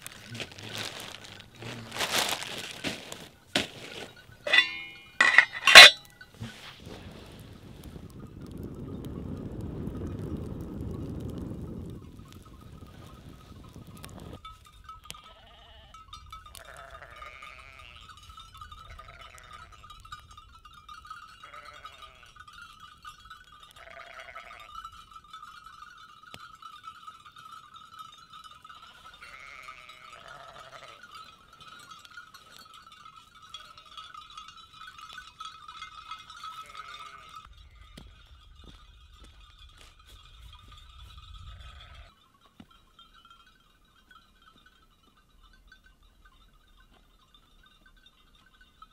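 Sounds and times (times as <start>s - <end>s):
sheep bells ringing: 0.0s - 6.7s, 8.0s - 9.4s, 11.9s - 48.9s
sheep bleating: 15.2s - 16.0s, 16.6s - 18.0s, 18.9s - 19.8s, 21.4s - 22.3s, 23.8s - 24.7s, 29.0s - 31.1s, 36.6s - 37.5s, 41.5s - 42.1s.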